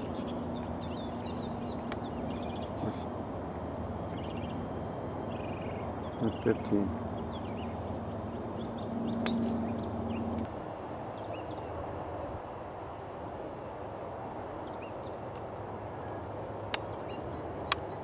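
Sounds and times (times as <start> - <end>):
small birds chirping: 0.0 - 3.2, 4.0 - 10.5, 11.1 - 11.8, 16.0 - 18.0
steady low hum: 0.0 - 18.0
golf club striking ball: 9.2 - 9.6.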